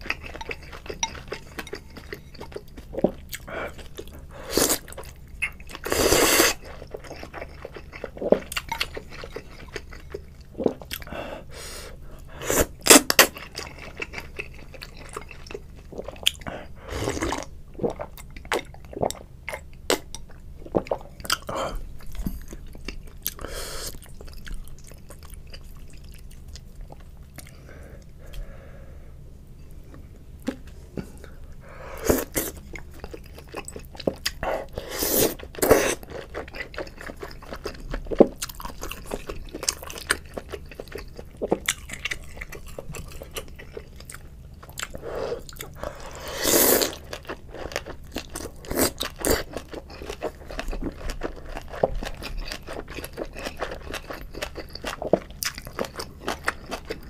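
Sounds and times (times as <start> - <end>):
wet chewing: 32.2 - 57.0
slurping noodles: 34.7 - 36.0, 45.0 - 47.0.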